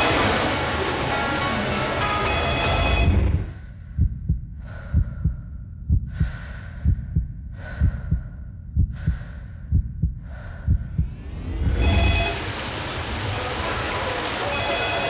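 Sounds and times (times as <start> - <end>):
heartbeat double thump: 3.0 - 12.3
quick breathing: 3.4 - 5.5, 6.1 - 11.2.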